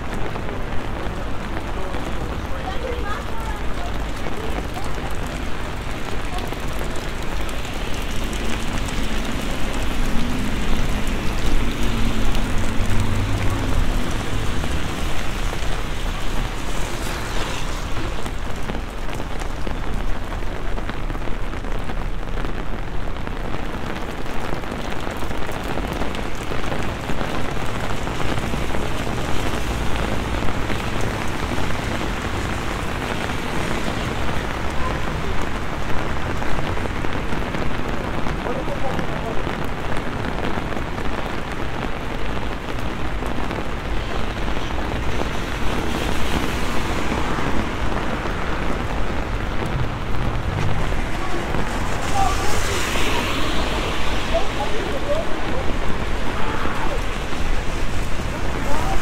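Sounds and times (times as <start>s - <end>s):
heavy rain on pavement: 0.0s - 59.0s
low rumble: 48.2s - 52.2s.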